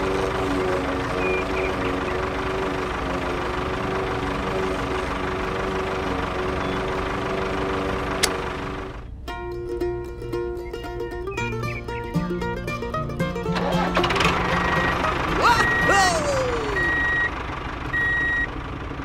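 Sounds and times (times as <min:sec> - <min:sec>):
sharp click: 0:08.2 - 0:08.4.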